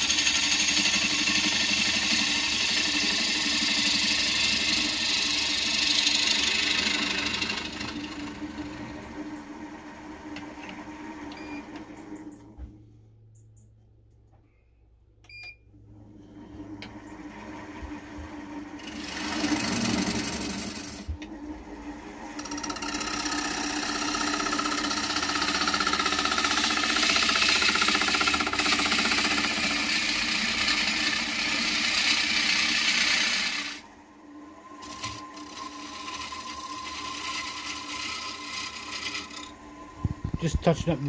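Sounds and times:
gouge cutting wood on lathe: 0.0 - 11.0, 18.7 - 21.3, 22.3 - 33.8, 34.8 - 39.6
lathe motor hum: 0.0 - 12.2, 16.2 - 41.0.

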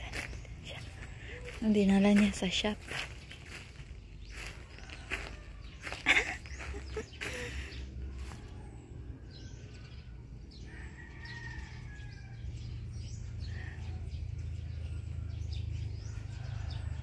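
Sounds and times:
footsteps crunching on gravel: 0.0 - 8.6
birds chirping and calling: 0.0 - 17.0.

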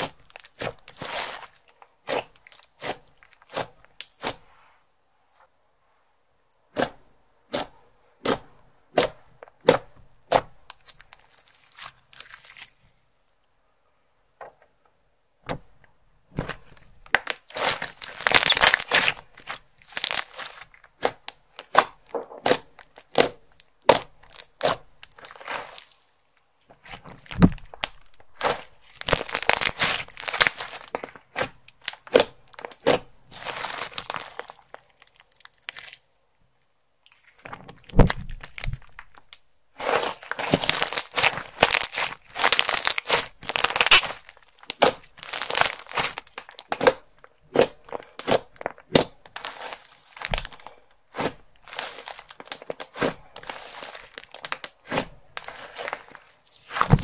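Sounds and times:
slime squished by hand: 0.0 - 4.5, 16.3 - 26.0, 26.8 - 36.0, 37.1 - 57.0.

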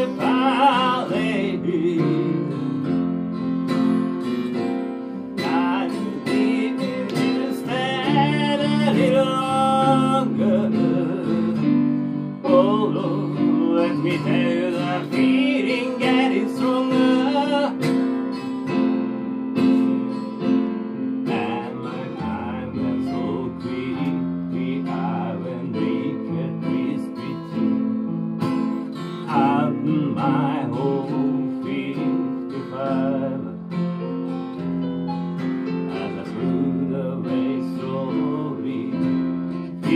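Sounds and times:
person singing: 0.0 - 3.0, 5.4 - 18.2, 21.2 - 27.8, 29.2 - 34.2, 35.9 - 39.9
electric keyboard playing: 0.0 - 24.5, 33.1 - 37.1
acoustic guitar strumming: 0.0 - 39.9.

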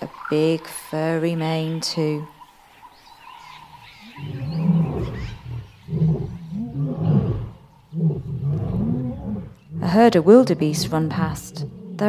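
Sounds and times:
lion roaring and grunting: 4.0 - 12.0.

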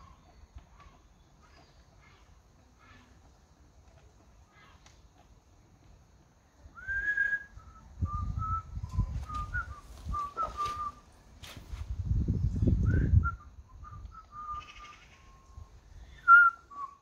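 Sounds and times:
person whistling a tune: 6.8 - 11.0, 12.8 - 14.7, 16.3 - 17.0.

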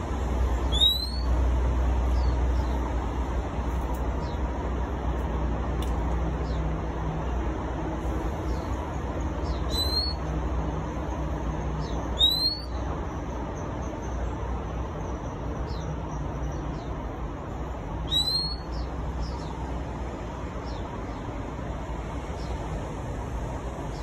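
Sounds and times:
low traffic rumble: 0.0 - 24.0
bird whistling rising notes: 0.7 - 1.3, 9.7 - 10.2, 12.2 - 12.8, 18.1 - 18.8.

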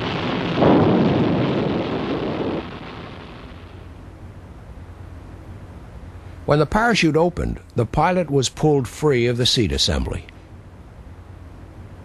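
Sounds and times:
rocket motors blasting: 0.0 - 4.3
faint rumble: 0.0 - 8.0.

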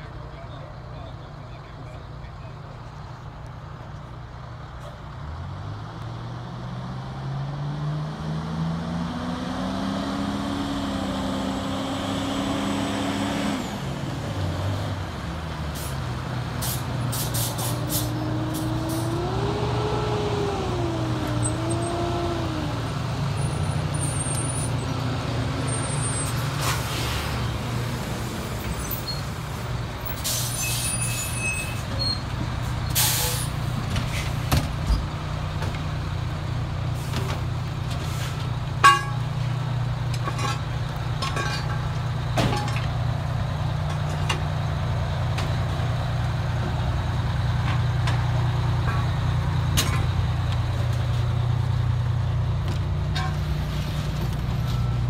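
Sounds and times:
diesel truck engines revving: 0.0 - 55.0
air brakes hissing: 16.6 - 19.0, 30.2 - 32.2, 32.9 - 34.4.

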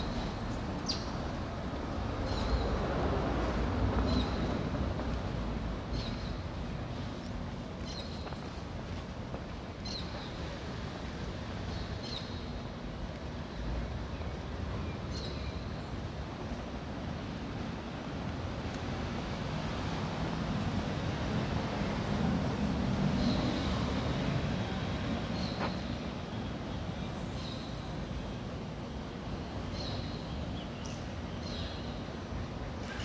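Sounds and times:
street noise: 0.0 - 33.0.

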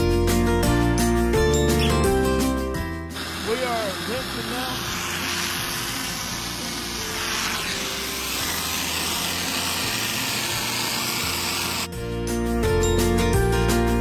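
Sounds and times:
music: 0.0 - 14.0
pressure washer spraying: 3.1 - 11.9.

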